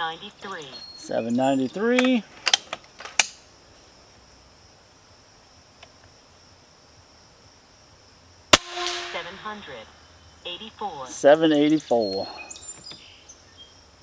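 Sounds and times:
faint insect drone: 0:00.0 - 0:14.0
air rifle cocking clicks: 0:02.0 - 0:03.4.

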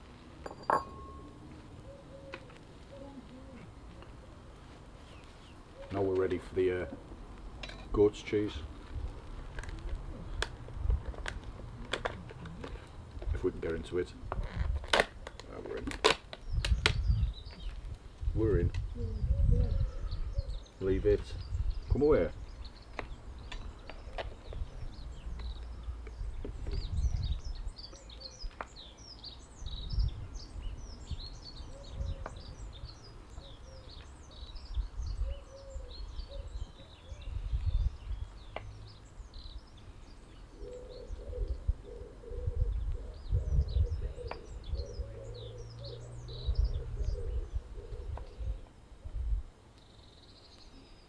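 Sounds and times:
birds chirping and singing: 0:00.8 - 0:04.2, 0:12.3 - 0:48.8
pigeon cooing: 0:01.8 - 0:03.7, 0:19.0 - 0:20.6, 0:35.2 - 0:37.3, 0:40.5 - 0:48.7.

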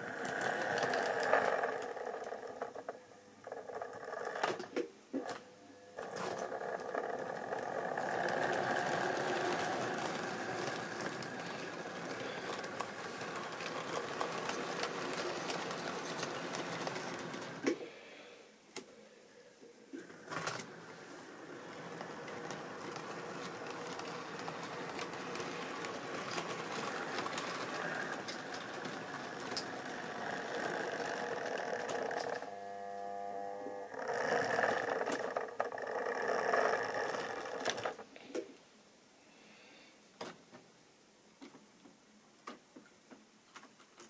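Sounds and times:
model train motor whirring: 0:00.0 - 0:04.6, 0:06.0 - 0:17.7, 0:20.0 - 0:38.0
wheel clicks: 0:00.0 - 0:04.6, 0:06.0 - 0:17.7, 0:20.2 - 0:32.5, 0:33.9 - 0:38.0.

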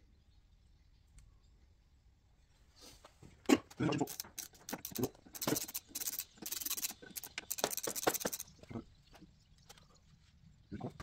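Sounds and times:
ratchet wrench clicking: 0:04.1 - 0:08.5.

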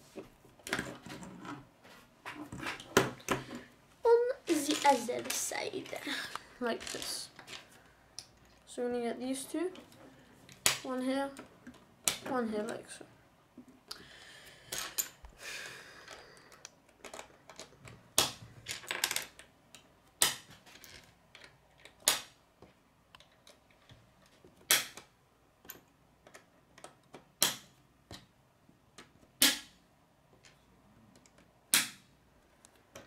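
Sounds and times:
faint rustling of plastic pieces: 0:00.1 - 0:13.2
plastic pieces clicking together: 0:16.0 - 0:22.4.

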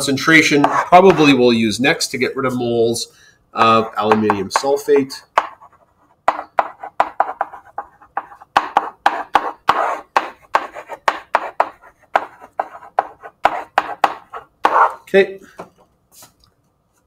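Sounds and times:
stylus tapping and scratching on screen: 0:00.4 - 0:01.4, 0:03.6 - 0:17.0.

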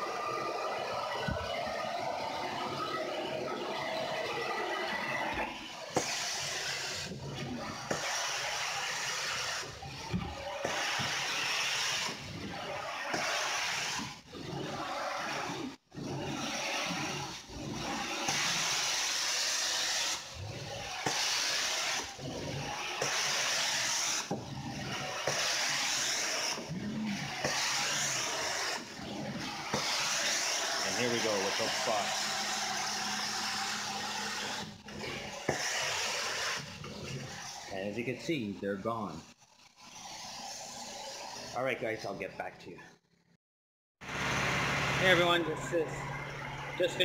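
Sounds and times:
scrubbing tool on carpet: 0:06.0 - 0:38.1.

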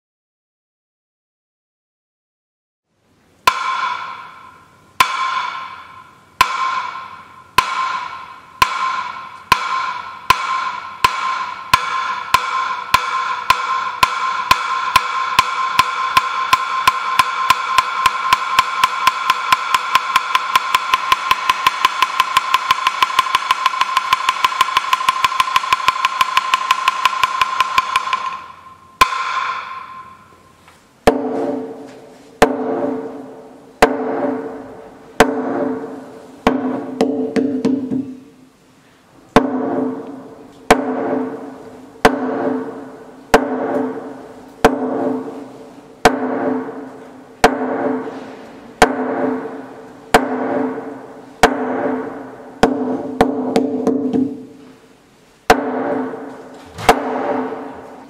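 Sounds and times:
lower hollow wooden knock: 0:03.5 - 0:30.2, 0:35.2 - 0:38.2, 0:48.8 - 0:54.4
wooden board struck with mallet: 0:03.5 - 0:38.2, 0:39.4 - 0:54.5, 0:55.5 - 0:58.0.

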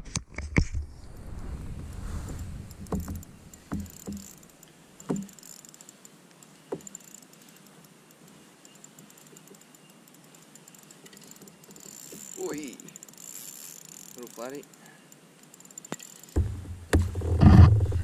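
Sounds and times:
faint fine ticking: 0:01.0 - 0:16.5
fishing tackle knocks and clicks: 0:02.7 - 0:14.8.

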